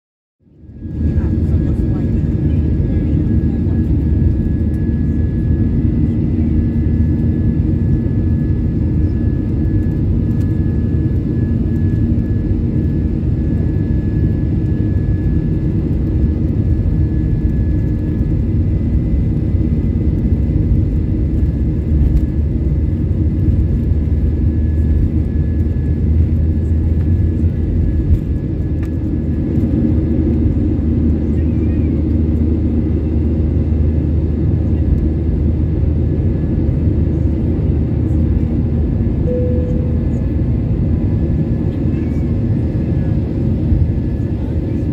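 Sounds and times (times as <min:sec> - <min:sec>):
jet engines running: 0:00.6 - 0:44.9
low rumble: 0:39.2 - 0:42.3
thin steady whine: 0:39.2 - 0:44.9.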